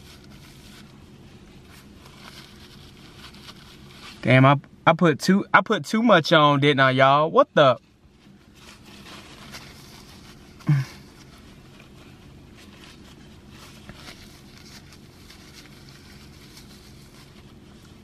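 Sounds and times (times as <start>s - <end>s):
paper napkin rustling: 0.0s - 4.4s, 7.8s - 18.0s
low steady hum: 0.0s - 18.0s
short grunt: 10.6s - 11.1s.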